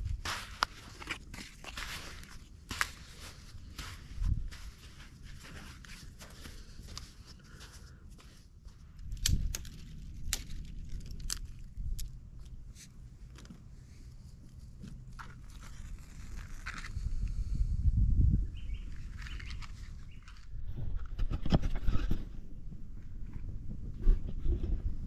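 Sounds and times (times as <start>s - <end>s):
dry sticks cracking: 8.9s - 13.7s.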